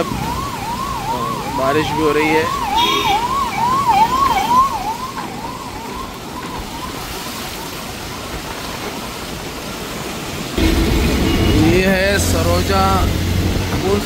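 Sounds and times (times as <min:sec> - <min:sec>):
emergency siren yelping: 0:00.0 - 0:08.4
tyres hissing on wet road: 0:07.2 - 0:14.0.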